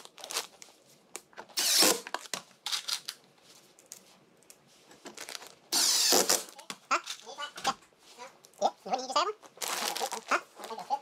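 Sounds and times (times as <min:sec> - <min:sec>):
impact driver driving screws: 0:01.6 - 0:02.0, 0:05.7 - 0:06.4.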